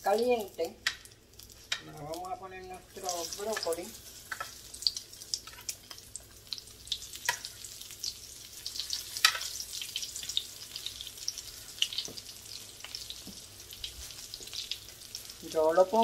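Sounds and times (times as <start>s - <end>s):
food sizzling in hot oil: 0.0s - 16.0s.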